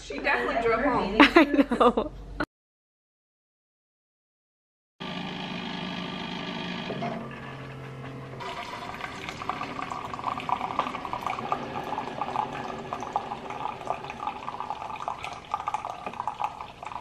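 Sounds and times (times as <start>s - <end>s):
coffee gurgling and sputtering: 8.4s - 17.0s.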